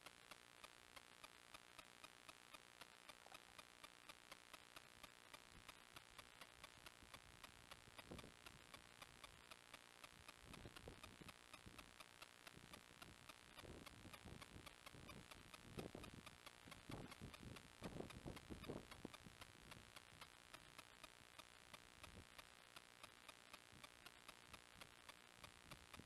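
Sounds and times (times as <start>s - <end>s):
faint steady ticking: 0.0s - 26.0s.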